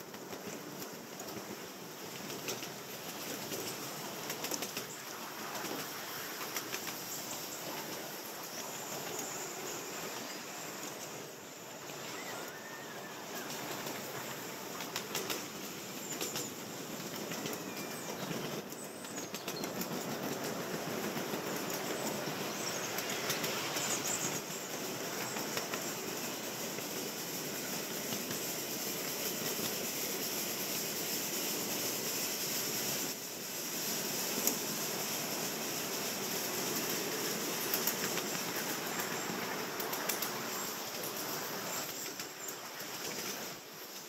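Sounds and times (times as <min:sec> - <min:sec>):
steam traction engine clattering: 0:00.0 - 0:44.0.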